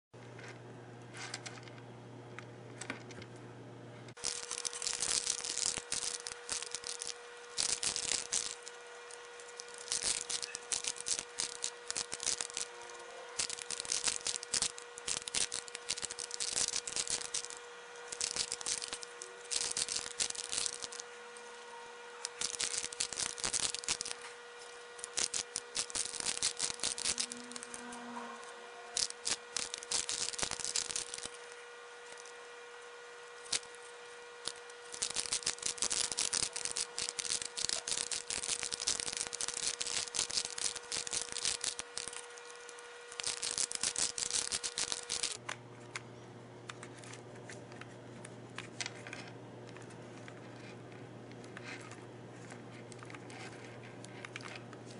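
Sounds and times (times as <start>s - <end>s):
puzzle cube clicking and rattling: 4.2s - 21.0s, 22.2s - 24.2s, 25.0s - 27.9s, 28.9s - 31.5s, 33.4s - 33.8s, 34.4s - 45.4s.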